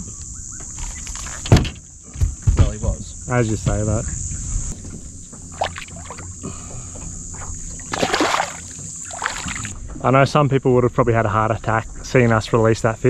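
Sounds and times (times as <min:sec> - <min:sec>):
high insect drone: 0:00.0 - 0:13.0
water sloshing around boat: 0:04.7 - 0:10.2
water splash: 0:05.5 - 0:06.3, 0:07.9 - 0:09.8.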